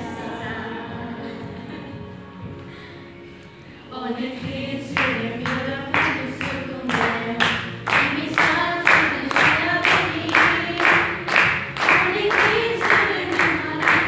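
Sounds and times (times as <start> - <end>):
young voices singing: 0.0 - 3.1, 3.7 - 14.0
hand claps: 5.0 - 14.0.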